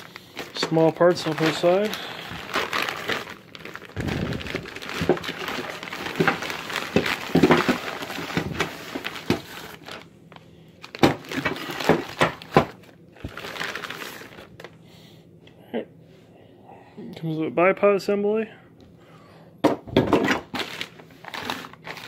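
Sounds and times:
plastic bags crinkling: 0.0 - 14.8, 20.2 - 22.0
bagged parts knocking: 0.4 - 10.0, 10.8 - 14.5.

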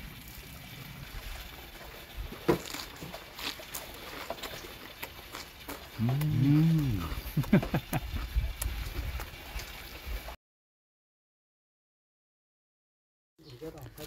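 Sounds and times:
man chewing crunchy leaf: 2.4 - 8.8
man humming: 6.0 - 7.8.

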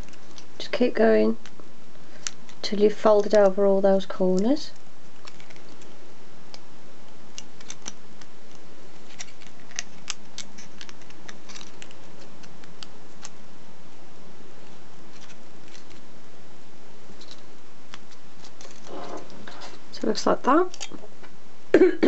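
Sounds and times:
faint steady hum: 0.0 - 22.0
foil wrapper crinkling: 9.0 - 13.3, 15.1 - 16.0, 17.2 - 19.8.

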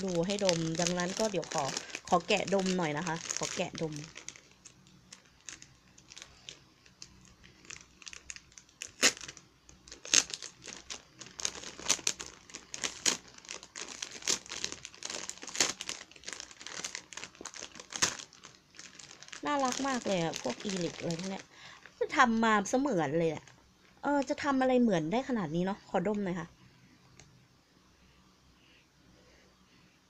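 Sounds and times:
plastic bag crinkling: 0.0 - 22.3.

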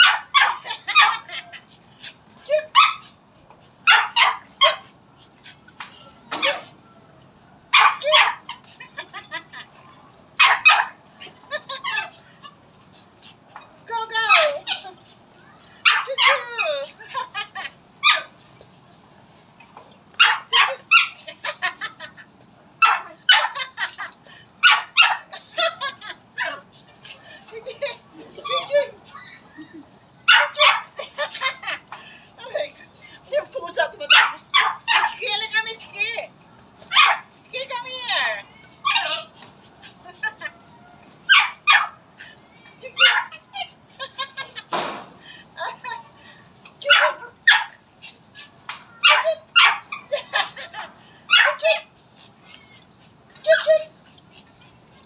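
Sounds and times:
small dog yapping: 0.0 - 1.4, 3.9 - 4.9, 7.7 - 8.6, 10.4 - 11.0, 15.8 - 16.7, 20.2 - 21.2, 22.8 - 23.6, 24.6 - 25.3, 30.2 - 31.0, 34.1 - 35.2, 36.9 - 37.3, 41.2 - 42.0, 43.0 - 43.4, 46.9 - 47.8, 48.4 - 50.1, 51.3 - 51.9.

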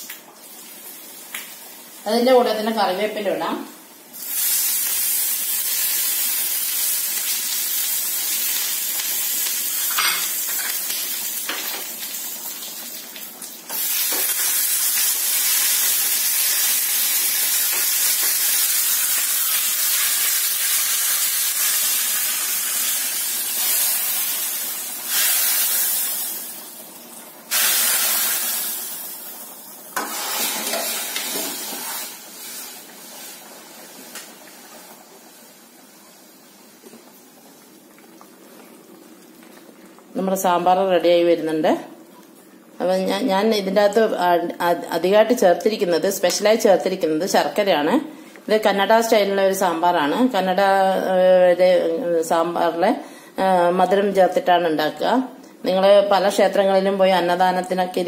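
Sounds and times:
spices sizzling in hot oil: 0.0 - 41.3.

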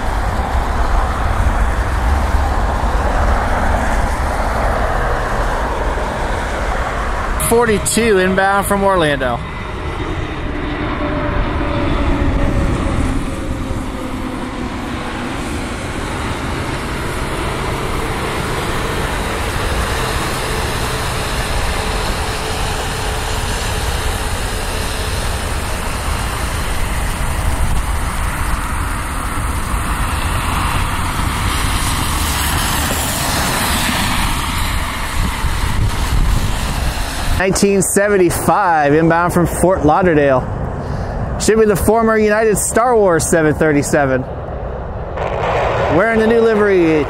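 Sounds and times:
jet engines of landing plane: 0.0 - 47.0.

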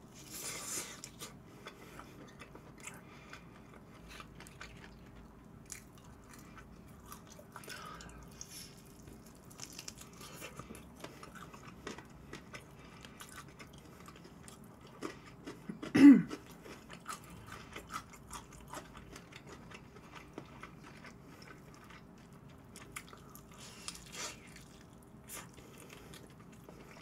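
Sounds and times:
chewing and crunching: 0.2 - 27.0.

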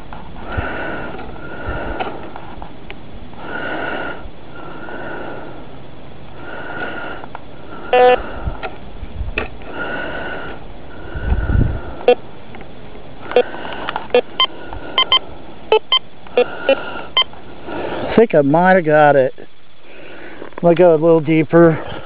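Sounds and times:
metal detector tones: 7.2 - 8.3, 12.0 - 12.2, 13.2 - 17.4
sharp beep: 7.9 - 8.2, 12.0 - 12.2, 14.1 - 17.3.

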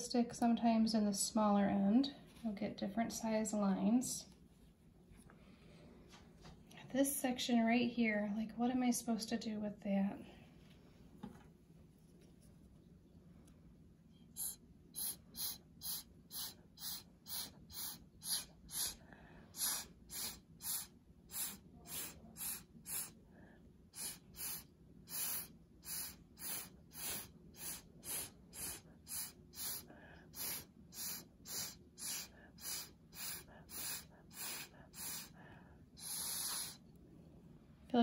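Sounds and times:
short puffs of breath: 14.3 - 36.9.

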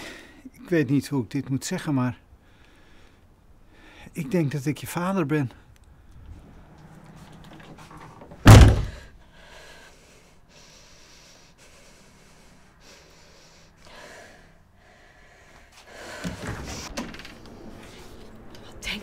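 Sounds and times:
door slamming shut: 8.3 - 9.1.

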